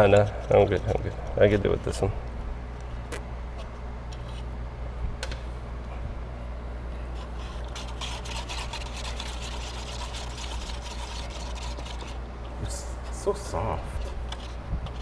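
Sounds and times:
steady low hum: 0.0s - 15.0s
paintbrush scraping on board: 7.2s - 12.2s.

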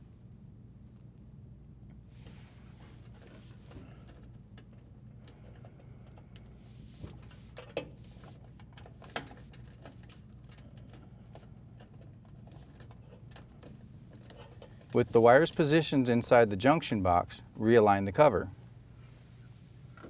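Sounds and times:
low steady hum: 0.0s - 20.0s
wires and wire nuts rustling: 2.2s - 17.4s.

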